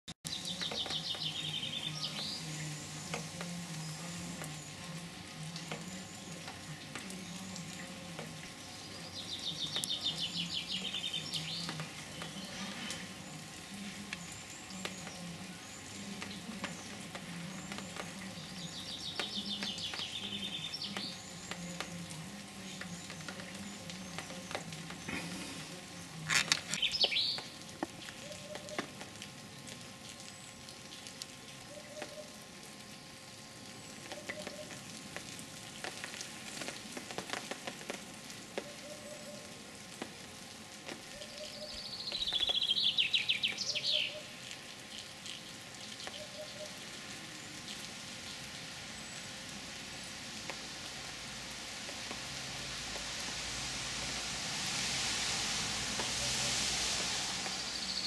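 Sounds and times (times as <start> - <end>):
songbird trilling: 26.7 - 27.4, 41.2 - 44.3.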